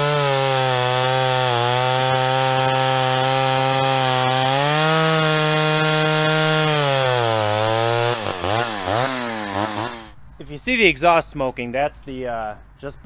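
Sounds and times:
chainsaw cutting through log: 0:00.0 - 0:10.2.

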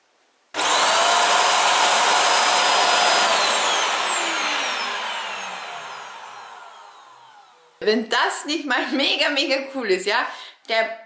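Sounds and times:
suction motor whine: 0:00.6 - 0:07.8.

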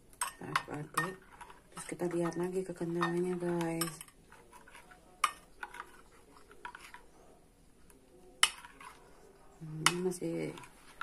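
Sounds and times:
metal spoon clinking on bowl: 0:00.2 - 0:07.0.

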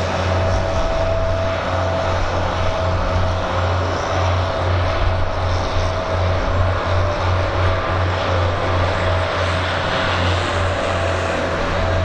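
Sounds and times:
aircraft engines running: 0:00.0 - 0:12.0
pulsing low hum: 0:00.0 - 0:12.0.

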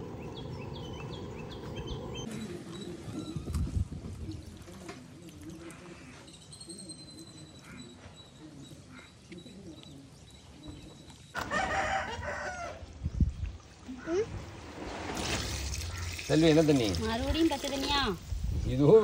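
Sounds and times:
rooster crowing: 0:11.4 - 0:12.8.

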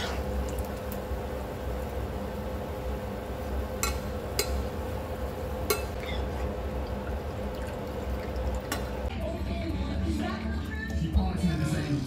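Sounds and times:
food sizzling in oil: 0:00.0 - 0:08.1
steady hum: 0:00.0 - 0:10.8
metal ladle clinking on pan: 0:05.7 - 0:06.1.

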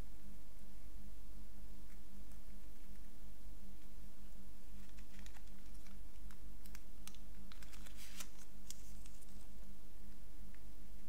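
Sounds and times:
steady low hum: 0:00.0 - 0:11.0
paper card clicks and rustles: 0:04.7 - 0:09.7.

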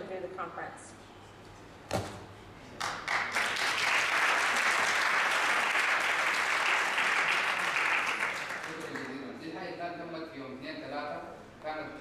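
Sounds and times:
audience applauding: 0:02.8 - 0:09.2.

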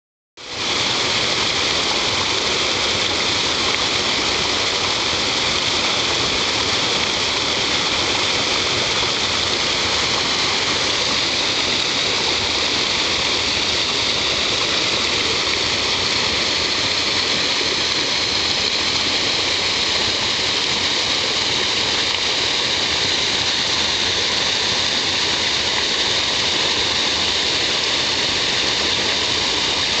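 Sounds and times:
waterfall splashing over rocks: 0:00.4 - 0:30.0.

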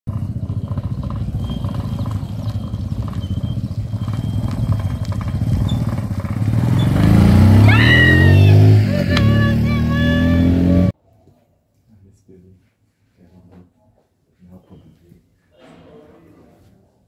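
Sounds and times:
small motorcycle engine passing: 0:00.1 - 0:11.0.

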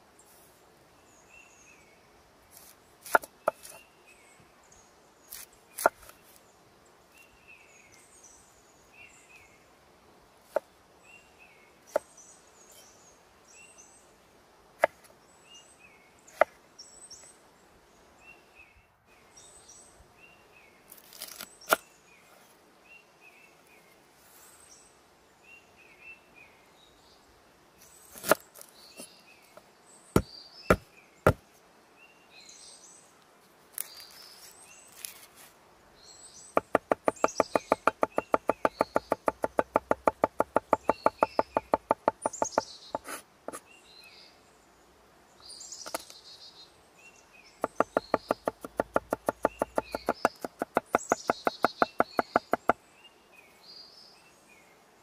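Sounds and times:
songbird chirping: 0:00.0 - 0:55.0
cleaver knocking on cutting board: 0:30.2 - 0:31.4, 0:36.6 - 0:43.2, 0:47.6 - 0:52.8.

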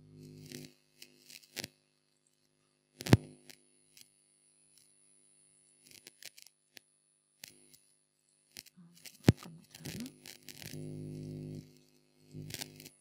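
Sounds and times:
faint clicks: 0:08.5 - 0:13.0.

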